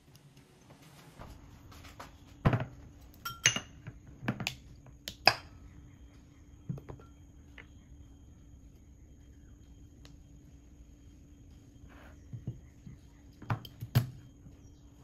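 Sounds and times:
glassy clinks: 3.2s - 3.8s.

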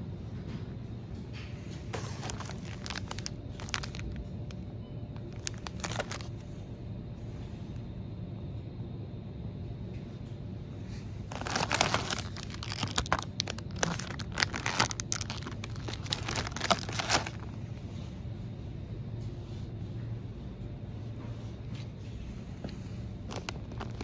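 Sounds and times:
steady low hum: 0.0s - 24.0s
plastic packet crinkling: 2.0s - 4.6s, 5.2s - 6.4s, 11.3s - 17.6s, 23.3s - 24.0s.

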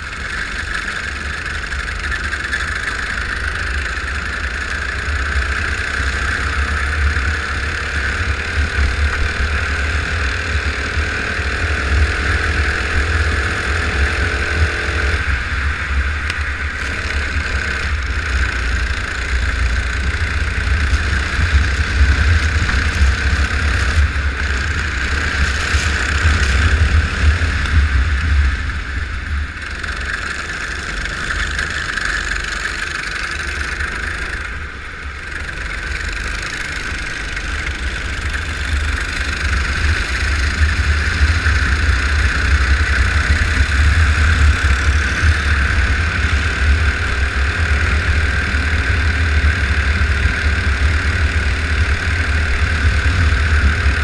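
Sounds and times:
go-kart engine running: 0.0s - 54.0s.

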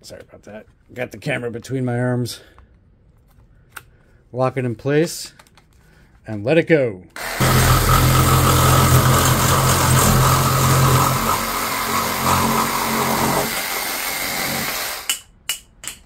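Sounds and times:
reciprocating saw cutting plastic pipe: 7.2s - 15.1s.

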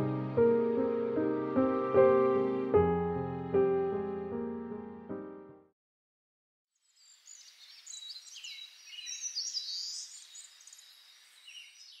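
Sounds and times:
small birds chirping: 6.9s - 12.0s.

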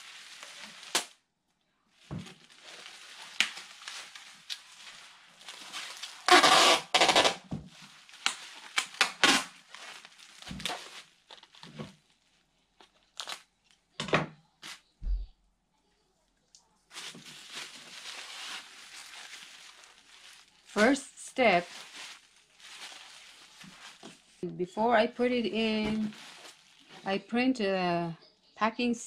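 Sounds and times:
packing tape ripping: 0.0s - 1.2s, 2.2s - 12.0s, 13.1s - 13.5s
bubble wrap and plastic crinkling: 0.0s - 14.9s, 16.6s - 27.5s.

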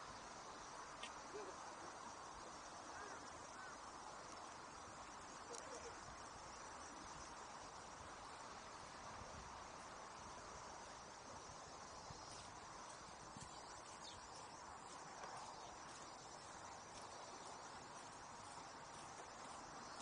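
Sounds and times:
steady outdoor hiss: 0.0s - 20.0s.

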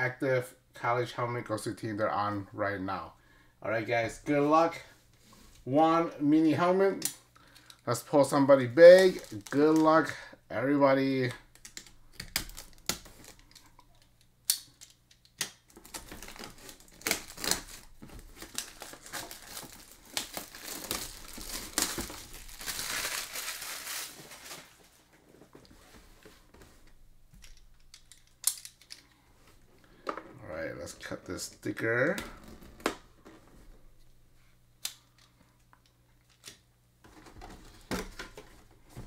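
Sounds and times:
plastic shrink wrap crinkling: 8.8s - 10.2s, 15.7s - 25.1s
sharp plastic snaps: 11.5s - 15.9s.

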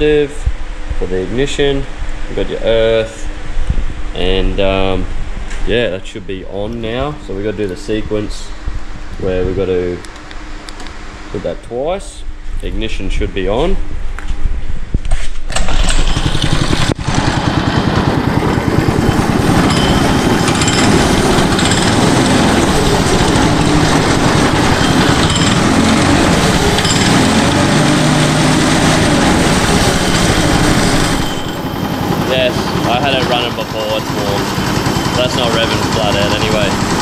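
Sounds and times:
small engine pull-started and running: 15.5s - 37.0s.

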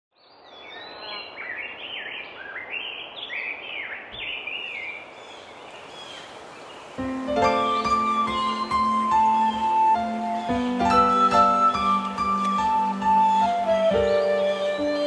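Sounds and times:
background hiss: 4.2s - 15.0s
bird singing whistled phrases: 7.4s - 15.0s.

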